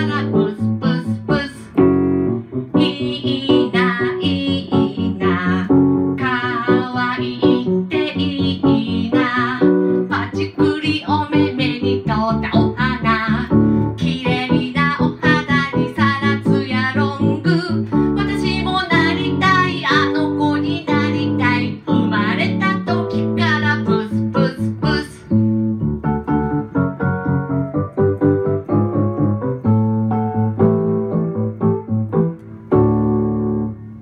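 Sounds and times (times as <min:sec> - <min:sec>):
woman singing into microphone: 0:00.0 - 0:01.8, 0:02.8 - 0:25.3
electric keyboard: 0:00.0 - 0:34.0.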